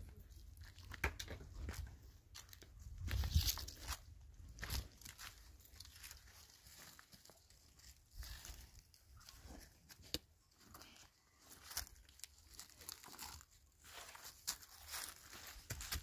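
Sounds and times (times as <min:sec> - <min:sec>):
dry leaves crunching underfoot: 0:02.3 - 0:09.4, 0:11.4 - 0:16.0.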